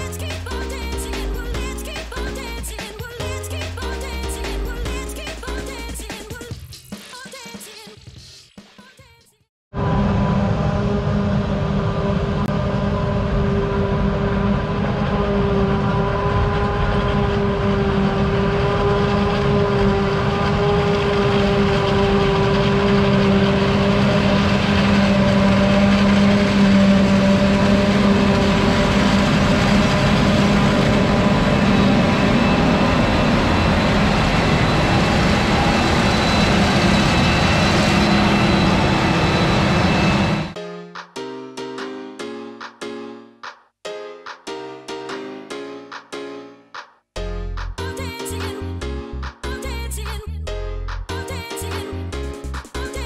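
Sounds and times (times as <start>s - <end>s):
forage harvester droning: 9.8s - 40.6s.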